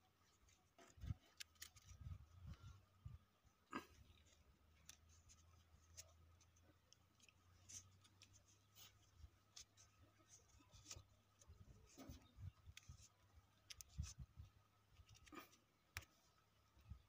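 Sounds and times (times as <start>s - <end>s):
small clicks and rustles: 0.2s - 2.9s, 3.9s - 17.0s.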